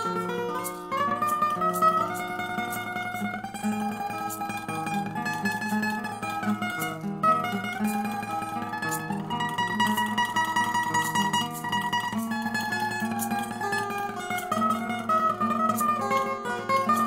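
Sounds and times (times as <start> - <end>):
acoustic guitar picking: 0.0 - 17.0.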